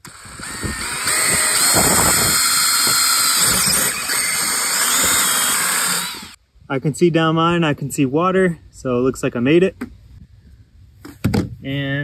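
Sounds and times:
power drill boring wood: 0.0s - 6.4s.

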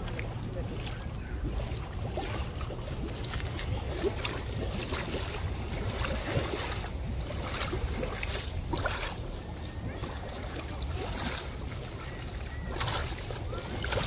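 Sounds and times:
fish splashing at water surface: 0.0s - 14.0s
wind rumble on microphone: 0.0s - 14.0s.

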